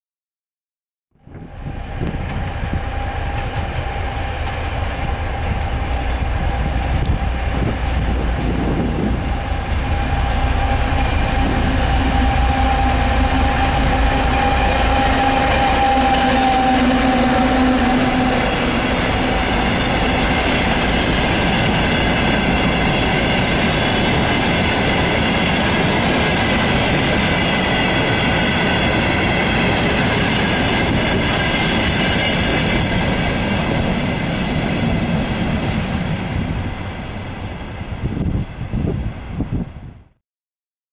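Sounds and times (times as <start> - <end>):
diesel locomotive engine passing: 1.3 - 39.9
high steady wheel squeal: 9.4 - 34.2.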